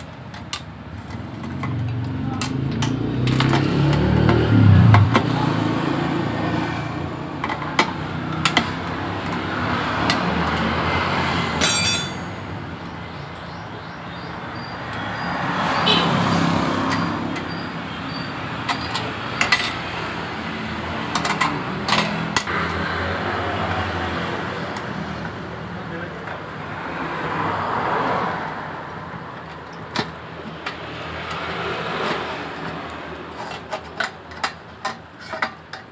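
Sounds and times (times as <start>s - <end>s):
hand tools clicking and knocking: 0.0s - 5.5s, 7.2s - 12.8s, 16.6s - 22.8s, 29.3s - 35.9s
road traffic: 0.0s - 35.9s.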